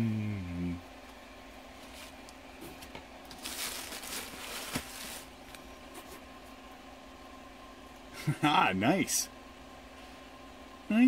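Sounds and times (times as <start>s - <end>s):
plastic packing material crinkling: 3.2s - 5.6s.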